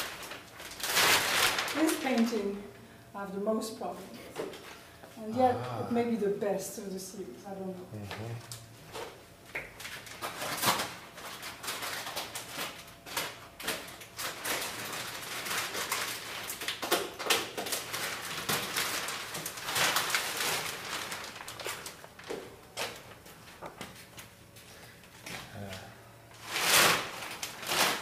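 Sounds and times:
rustling and crackling: 0:00.0 - 0:02.5, 0:17.6 - 0:25.3, 0:26.4 - 0:28.0.

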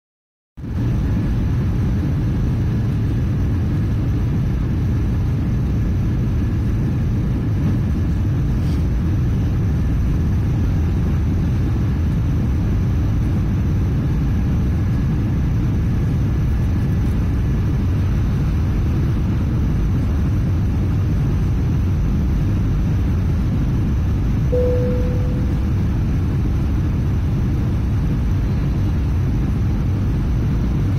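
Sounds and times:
jet engine and airflow rumble: 0:00.6 - 0:30.9
faint steady whine: 0:17.6 - 0:30.9.

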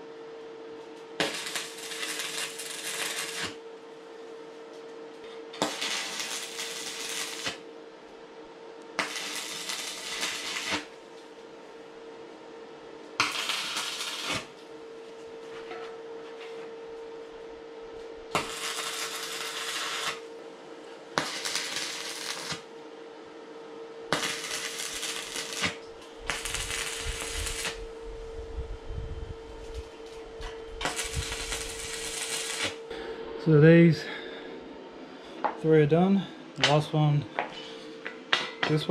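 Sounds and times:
steady hum: 0:00.0 - 0:38.9
electric arc welding: 0:01.2 - 0:03.6, 0:05.6 - 0:07.7, 0:08.9 - 0:11.0, 0:13.2 - 0:14.6, 0:18.3 - 0:20.3, 0:21.1 - 0:22.7, 0:24.1 - 0:28.0, 0:30.8 - 0:32.8.

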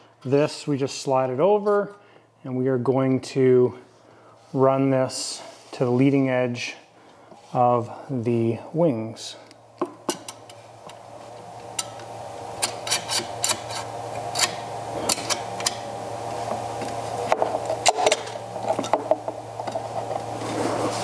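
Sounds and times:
tool scraping along rail: 0:12.6 - 0:15.8.

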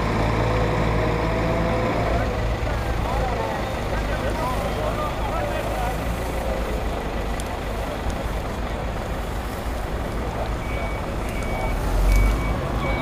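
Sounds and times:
low rumble of vehicle noise: 0:00.0 - 0:13.0
reversing alarm beeping: 0:10.6 - 0:13.0.

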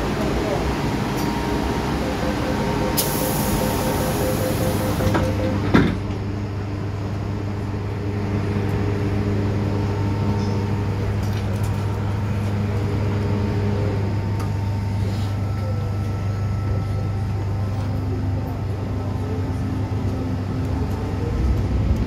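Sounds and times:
low hum of train equipment: 0:00.0 - 0:22.0
warning beeps: 0:01.2 - 0:05.7
train doors shutting with thump: 0:02.6 - 0:06.3.

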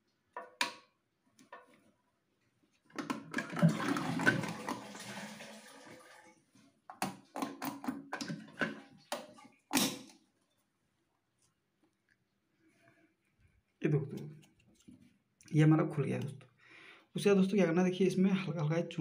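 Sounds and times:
plastic clicks and knocks: 0:02.9 - 0:03.6, 0:06.9 - 0:09.4
water splashing in toilet cistern: 0:03.0 - 0:06.4.

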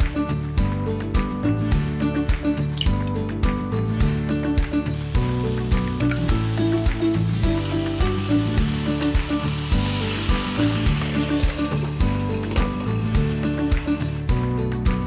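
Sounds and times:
background music with a beat: 0:00.0 - 0:15.0
food sizzling in a frying pan: 0:04.9 - 0:14.2
water poured into a pan: 0:05.0 - 0:14.2.

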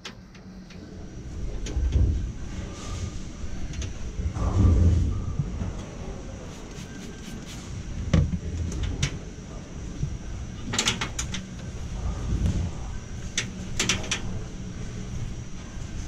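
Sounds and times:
low machinery hum: 0:00.0 - 0:16.0
rag wiping: 0:06.4 - 0:07.7.

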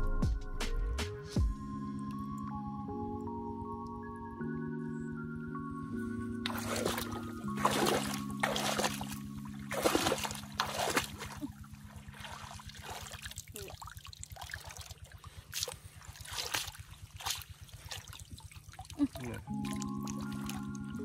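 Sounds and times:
muddy water splashing: 0:06.4 - 0:21.0
water dripping and trickling: 0:06.4 - 0:21.0.

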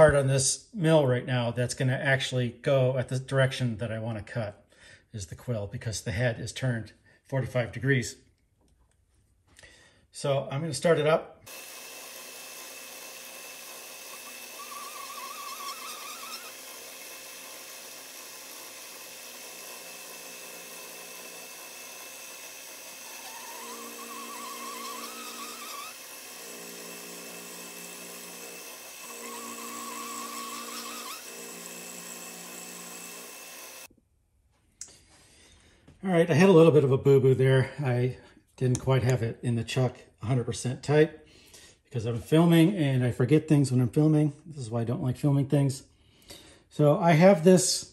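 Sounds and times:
milling machine cutting metal: 0:11.5 - 0:33.9.

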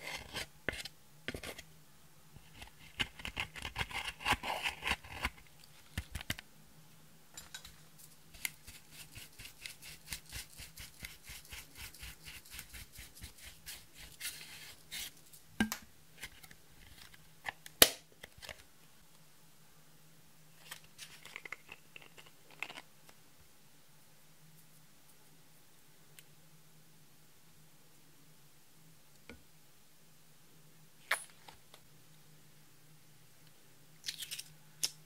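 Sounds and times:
tool scraping eyeshadow powder: 0:00.0 - 0:01.6, 0:02.5 - 0:05.4, 0:08.4 - 0:15.2.

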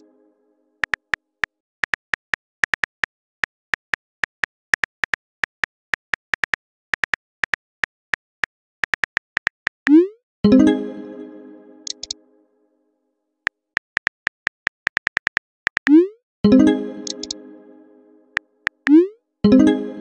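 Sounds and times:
phone keyboard clicks: 0:11.9 - 0:12.2, 0:13.8 - 0:15.9, 0:17.0 - 0:17.4.

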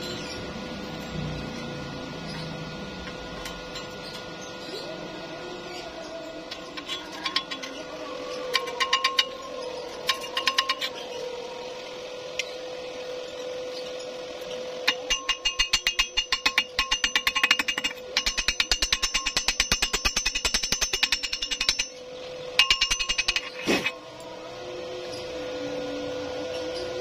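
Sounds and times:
chipping hammer tapping metal: 0:06.5 - 0:11.2, 0:14.4 - 0:24.0.

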